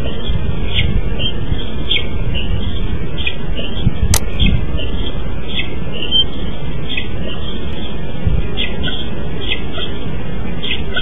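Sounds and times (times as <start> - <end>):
wind rumbling on microphone: 0.0 - 11.0
sharp click: 4.1 - 4.3.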